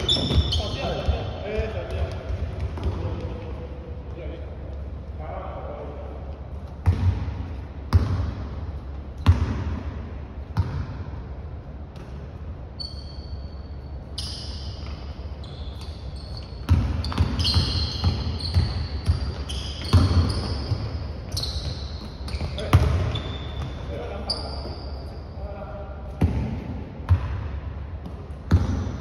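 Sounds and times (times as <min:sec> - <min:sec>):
sneakers squeaking on court: 0:00.0 - 0:03.6, 0:06.6 - 0:08.4, 0:12.8 - 0:25.4, 0:28.0 - 0:29.0
basketball bouncing on wooden floor: 0:06.8 - 0:07.3, 0:16.6 - 0:20.9, 0:28.0 - 0:29.0.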